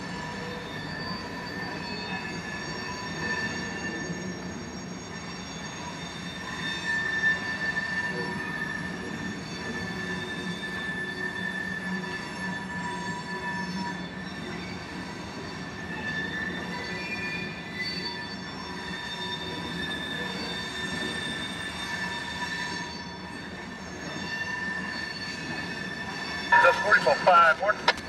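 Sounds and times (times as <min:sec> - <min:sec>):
train wheels squealing on rails: 0:00.0 - 0:28.0
freight train rumble: 0:24.7 - 0:28.0.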